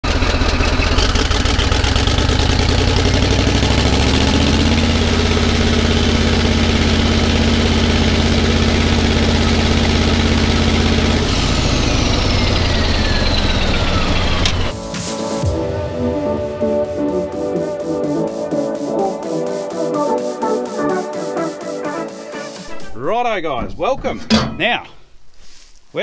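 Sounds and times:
bulldozer diesel engine revving: 0.0s - 14.7s
turbo whine: 2.6s - 14.8s.

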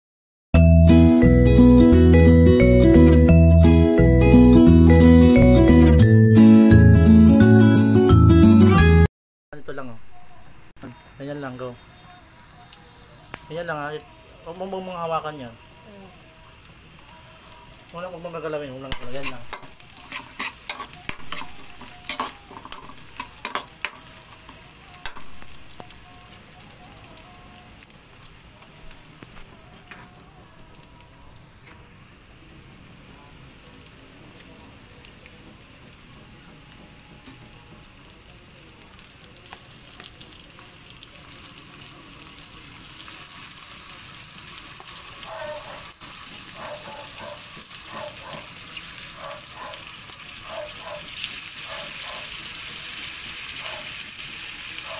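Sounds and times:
food sizzling in hot oil: 9.6s - 54.9s
spatula scraping a wok: 19.0s - 25.2s.

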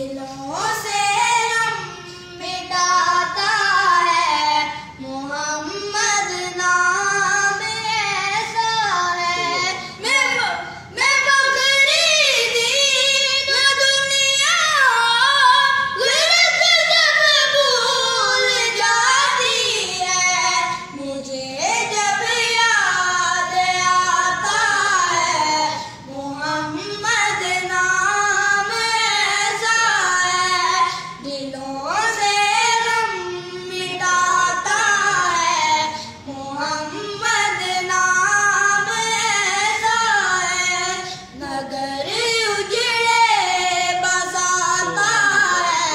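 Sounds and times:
person singing devotional song: 10.9s - 45.9s.

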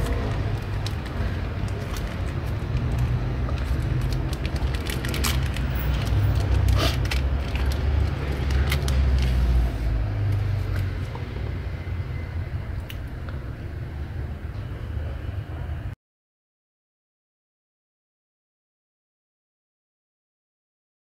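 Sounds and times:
plastic packaging crinkling: 0.0s - 9.6s.

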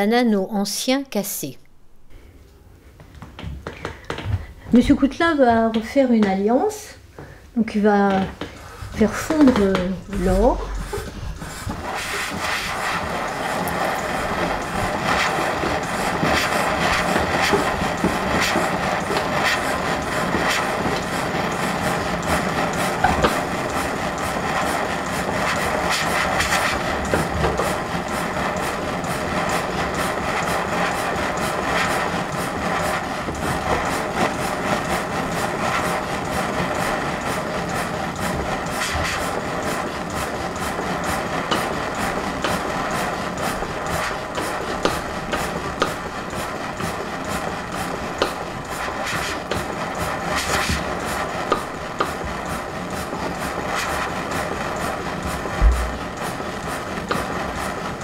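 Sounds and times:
gas torch hissing: 8.4s - 57.9s.

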